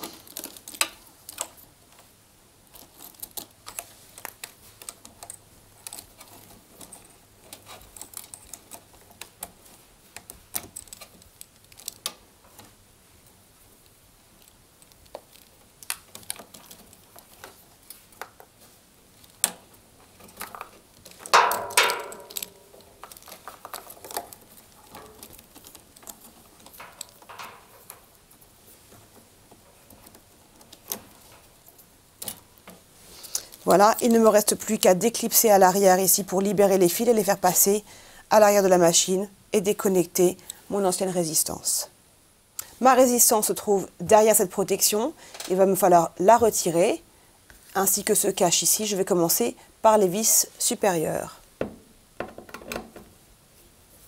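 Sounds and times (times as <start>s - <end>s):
wires and connectors clicking: 0.0s - 2.1s, 2.7s - 18.6s, 19.2s - 34.2s.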